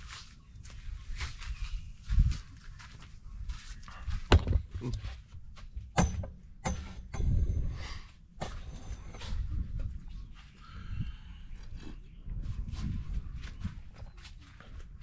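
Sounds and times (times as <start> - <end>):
sharp knocks and clinks: 5.9 - 7.5.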